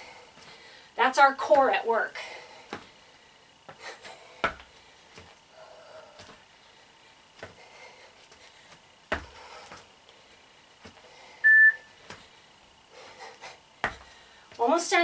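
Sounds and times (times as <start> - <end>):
feet thumping on foam mats: 3.6 - 5.4, 7.3 - 7.7, 8.3 - 10.0, 10.8 - 11.1, 13.8 - 14.8
high electronic beep: 11.4 - 11.9.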